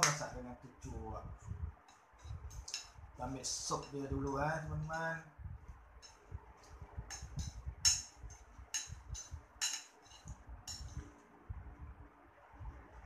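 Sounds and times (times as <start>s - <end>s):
spoon clinking against a bowl: 7.1s - 11.0s.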